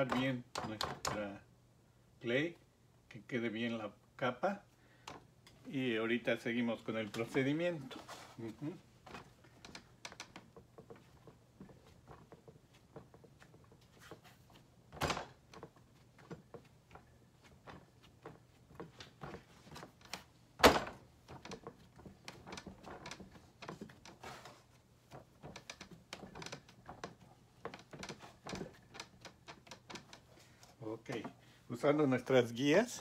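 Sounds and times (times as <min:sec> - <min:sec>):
clay tools knocking and clicking: 0:00.0 - 0:01.2.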